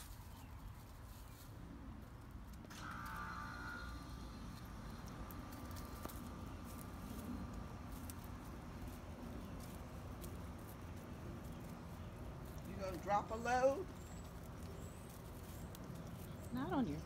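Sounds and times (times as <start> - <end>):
dog paws crunching through mulch: 0.0 - 17.0.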